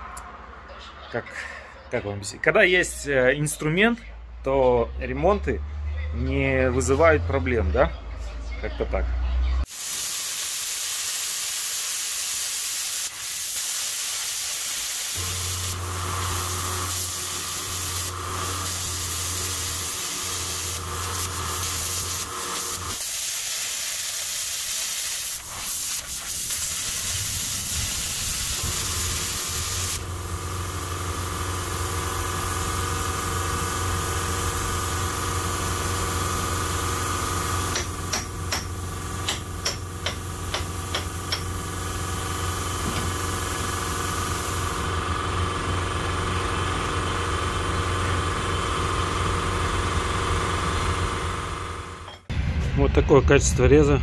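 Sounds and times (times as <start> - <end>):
plasma cutter hissing: 9.7 - 44.9.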